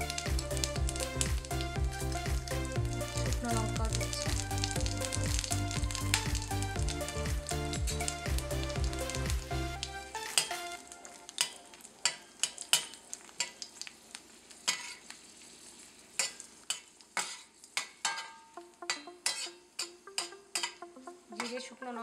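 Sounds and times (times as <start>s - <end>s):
spices sizzling in hot oil: 0.0s - 22.0s
spatula scraping pan: 14.7s - 15.2s, 16.2s - 20.8s.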